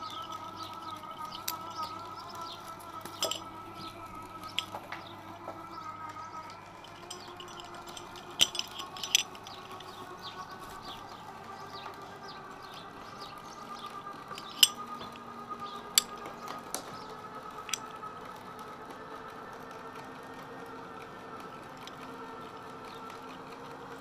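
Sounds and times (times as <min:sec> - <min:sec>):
faint steady hum: 0:00.0 - 0:19.6
metal carabiner clicks: 0:03.0 - 0:04.8, 0:06.8 - 0:10.0, 0:14.3 - 0:15.2, 0:17.6 - 0:17.9.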